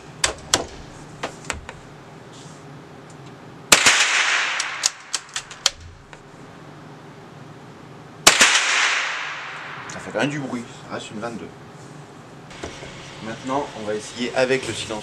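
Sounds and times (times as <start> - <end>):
rifle shots echoing indoors: 3.7 - 5.8, 8.2 - 9.9.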